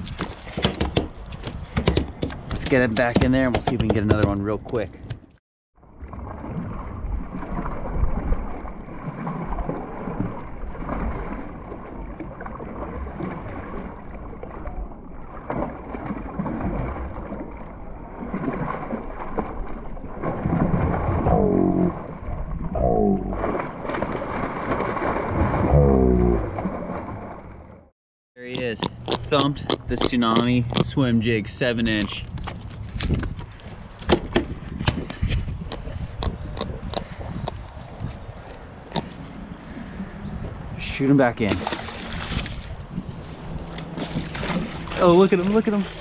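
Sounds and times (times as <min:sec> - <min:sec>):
water splashing and churning: 0:05.8 - 0:46.0
fish thrashing at surface: 0:41.5 - 0:42.9, 0:43.6 - 0:46.0.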